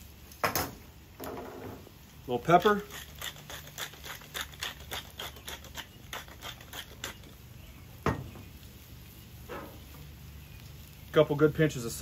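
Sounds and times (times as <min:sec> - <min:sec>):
pepper mill grinding: 0:02.4 - 0:07.4.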